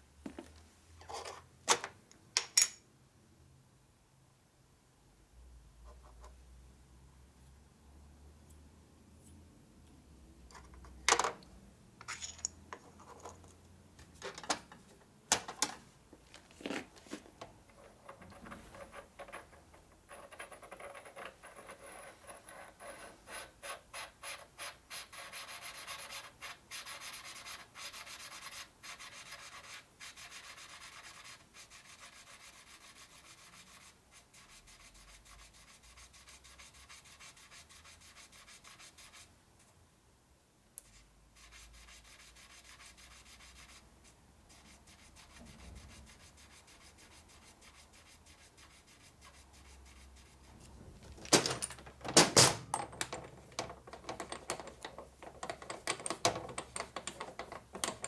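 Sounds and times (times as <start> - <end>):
metal clicks and knocks: 51.1 - 58.0.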